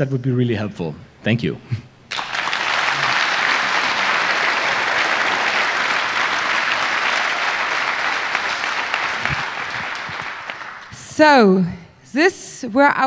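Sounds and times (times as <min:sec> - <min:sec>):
audience applauding: 0:02.1 - 0:11.2.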